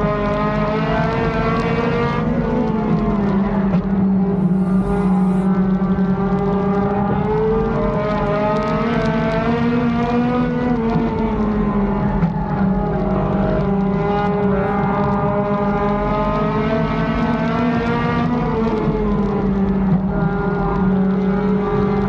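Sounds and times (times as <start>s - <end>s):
race car engine running hard: 0.0s - 22.0s.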